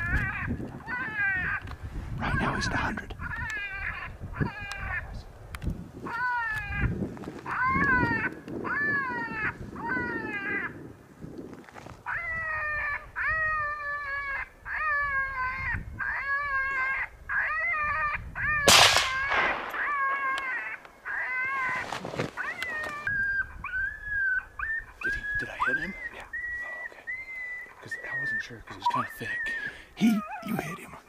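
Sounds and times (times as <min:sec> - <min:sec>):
rifle shot: 0:18.7 - 0:20.4
electronic predator call wailing: 0:25.4 - 0:31.0.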